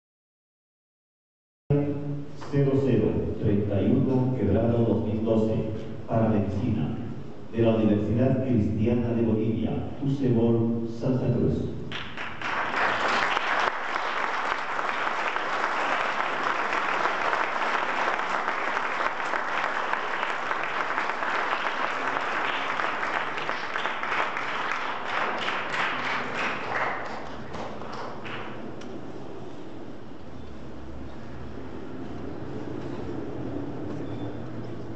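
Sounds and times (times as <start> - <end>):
audience applauding: 11.9 - 28.8.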